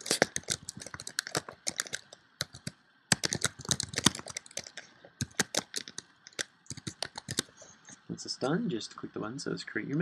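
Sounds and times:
computer keyboard typing: 0.0s - 7.6s.

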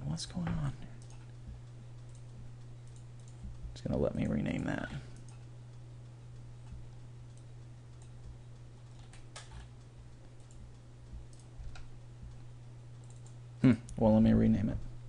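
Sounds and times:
steady low hum: 0.0s - 15.0s
faint computer mouse clicks: 2.0s - 3.6s, 13.0s - 13.4s.

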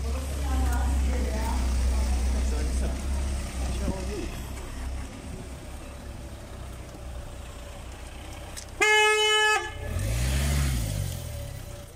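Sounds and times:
low traffic rumble: 0.0s - 11.9s
vehicle engine hum: 0.0s - 11.9s
car horn toot: 8.8s - 10.2s.

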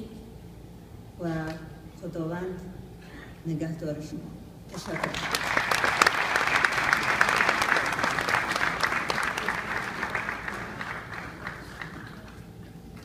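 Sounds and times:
audience applauding: 4.8s - 12.5s.

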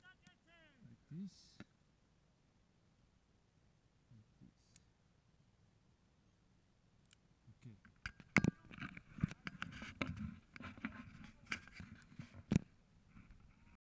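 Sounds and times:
camera handling knocks and scraping: 7.9s - 12.7s.

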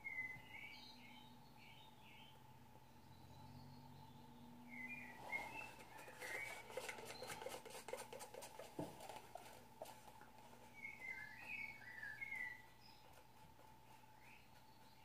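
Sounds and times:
bird chirps: 0.0s - 7.5s, 10.7s - 13.2s.

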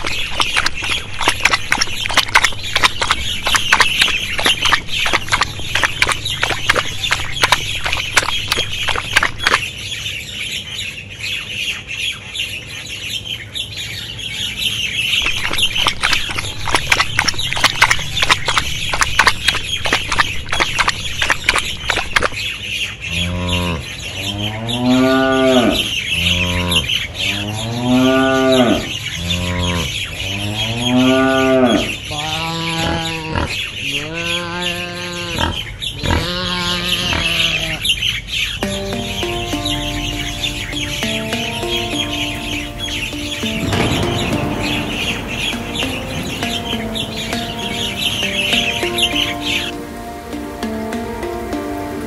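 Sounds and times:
cattle mooing: 23.2s - 37.8s
steady high hiss: 38.6s - 52.0s.

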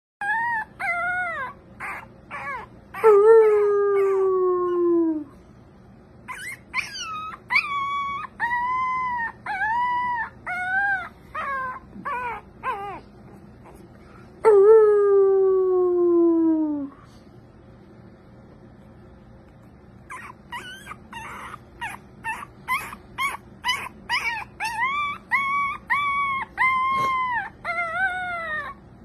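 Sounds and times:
puppy howling and yelping: 0.2s - 5.3s, 6.2s - 13.9s, 20.0s - 29.0s.

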